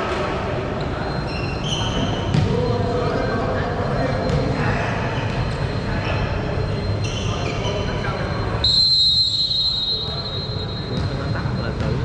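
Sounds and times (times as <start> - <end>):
sports hall noise: 0.0 - 12.0.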